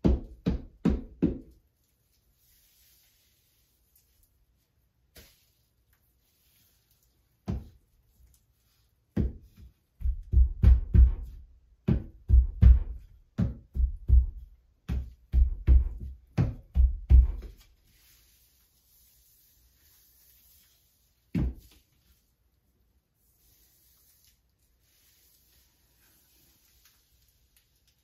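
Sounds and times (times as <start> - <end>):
grout float thumping on tiles: 7.3 - 8.3, 9.1 - 18.0, 21.3 - 22.0.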